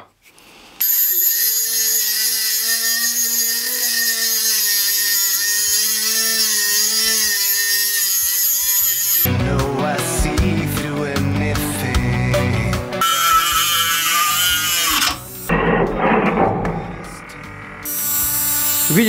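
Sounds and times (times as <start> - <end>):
rotary tool grinding through screw: 0.8 - 9.3, 13.0 - 15.5.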